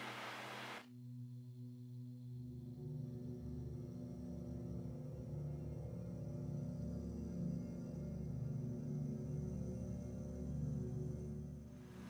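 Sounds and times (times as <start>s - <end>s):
steady hiss with low hum: 0.0s - 0.8s
soft ambient music: 0.0s - 12.0s.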